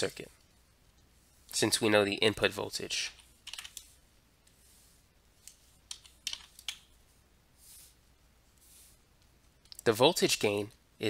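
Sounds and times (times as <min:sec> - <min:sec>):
soft hissing: 0:00.3 - 0:01.9, 0:02.7 - 0:09.9
computer input clicks: 0:03.4 - 0:03.9, 0:05.5 - 0:06.9.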